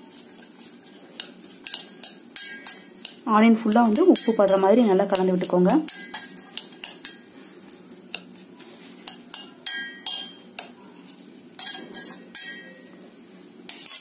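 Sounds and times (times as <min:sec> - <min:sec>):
metal spoon scraping steel bowl: 0:00.0 - 0:07.3, 0:08.1 - 0:12.8, 0:13.7 - 0:14.0.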